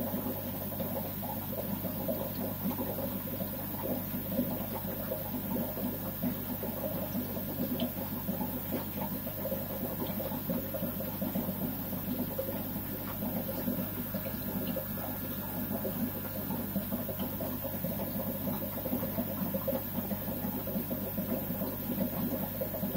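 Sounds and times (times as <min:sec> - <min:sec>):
low electric pump hum: 0:00.0 - 0:22.9
water bubbling and trickling: 0:00.0 - 0:22.9.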